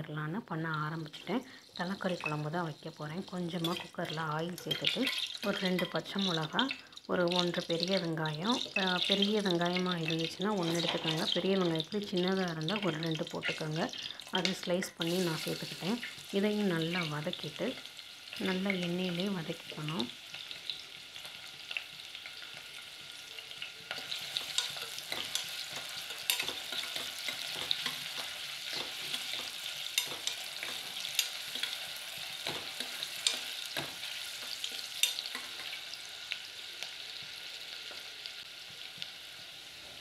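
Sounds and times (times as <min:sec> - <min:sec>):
onions sizzling in hot oil: 0:00.3 - 0:40.0
spoon scraping a pot: 0:23.9 - 0:35.8.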